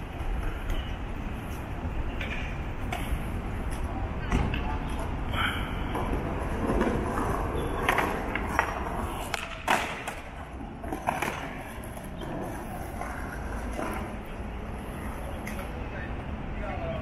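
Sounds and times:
bicycle rolling over paving: 4.9s - 15.5s.

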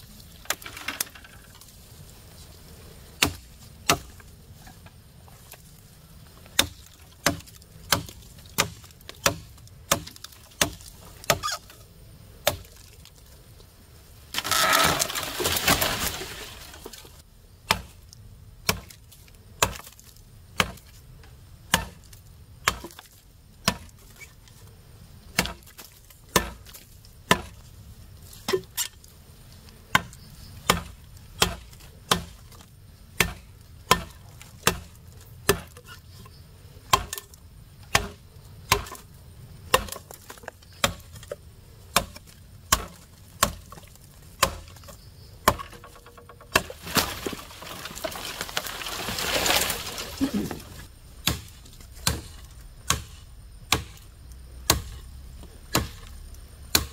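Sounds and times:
wood splitting: 6.5s - 11.8s, 14.3s - 18.0s, 18.6s - 21.0s, 21.7s - 24.3s, 25.3s - 27.6s, 29.9s - 36.0s, 36.9s - 39.1s, 39.7s - 54.0s, 54.7s - 55.0s, 55.7s - 56.9s
chopping blows on wood: 51.2s - 54.0s, 54.7s - 55.0s.

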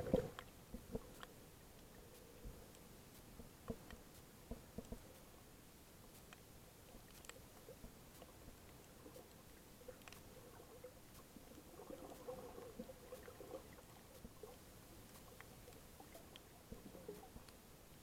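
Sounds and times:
low underwater burble: 0.0s - 0.4s
small underwater clicks: 0.0s - 18.0s.

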